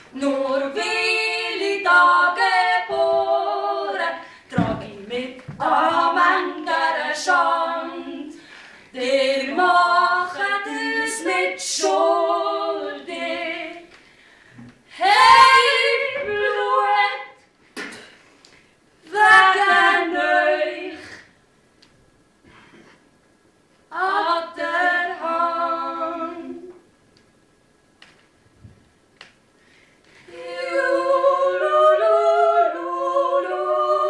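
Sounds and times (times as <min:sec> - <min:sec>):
two voices singing unaccompanied: 0:00.0 - 0:14.0, 0:14.6 - 0:18.1, 0:19.0 - 0:21.3, 0:23.9 - 0:26.9, 0:30.2 - 0:34.0.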